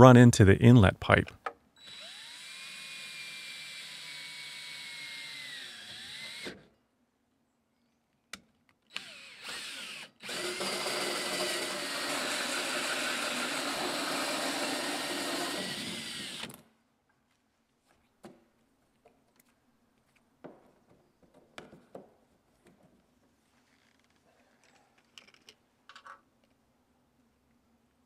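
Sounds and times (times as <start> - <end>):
cordless drill with hole saw: 1.8 - 6.7, 8.9 - 16.6.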